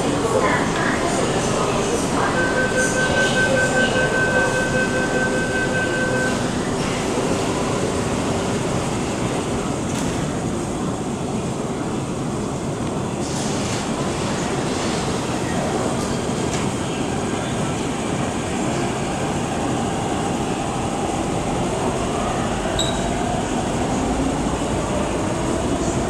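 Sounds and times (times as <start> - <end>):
train wheels rumbling on rail: 0.0 - 26.0
high whine: 1.9 - 6.8.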